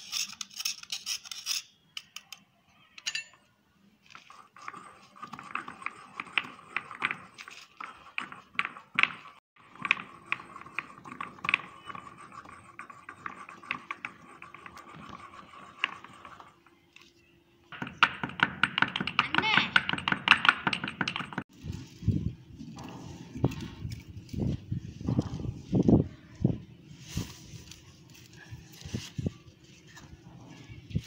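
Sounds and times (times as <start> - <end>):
pounder tapping and scraping pot: 4.2 - 16.8, 17.7 - 21.5.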